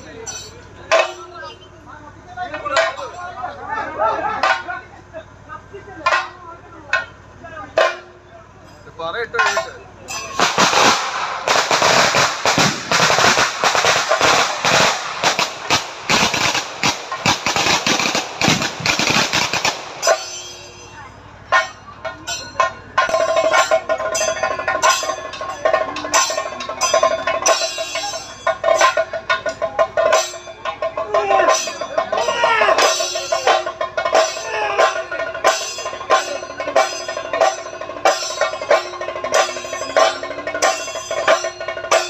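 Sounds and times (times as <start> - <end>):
drumming: 0.0 - 5.0, 6.0 - 8.2, 9.0 - 42.0
firecrackers crackling: 10.2 - 20.9.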